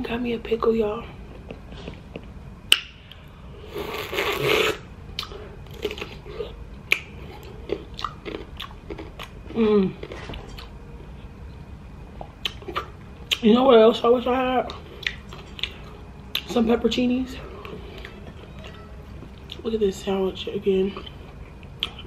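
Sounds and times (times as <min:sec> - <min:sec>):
wet chewing: 0:03.8 - 0:10.8, 0:12.2 - 0:13.5, 0:14.6 - 0:16.5, 0:21.0 - 0:22.0.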